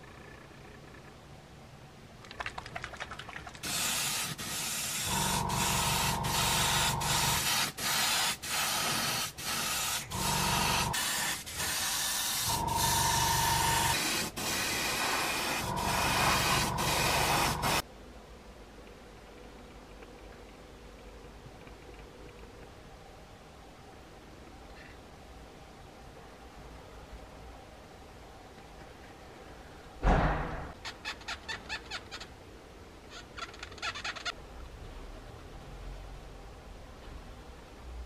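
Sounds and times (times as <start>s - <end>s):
airbrush spraying hiss: 3.6s - 17.8s
low motor hum: 5.1s - 7.1s, 15.6s - 17.8s.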